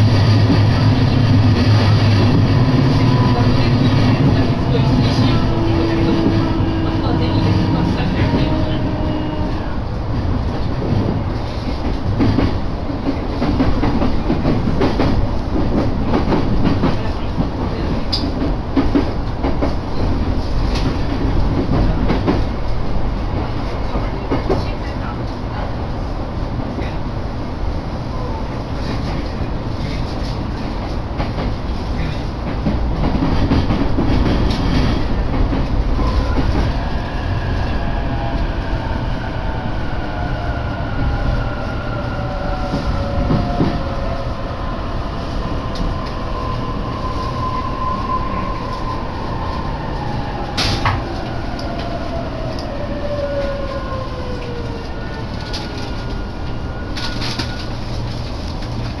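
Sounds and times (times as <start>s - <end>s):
train rumbling on rails: 0.0s - 59.0s.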